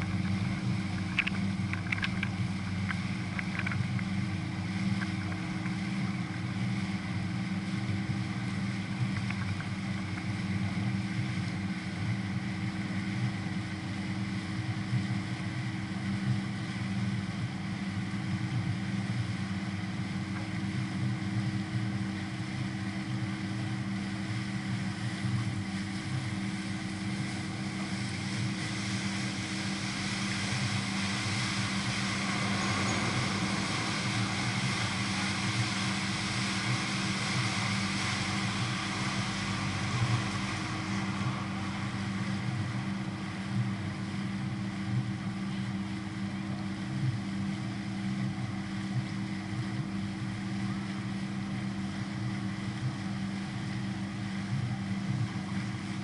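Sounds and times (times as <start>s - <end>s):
boat engine low hum: 0.0s - 56.0s
rushing noise: 27.8s - 45.4s.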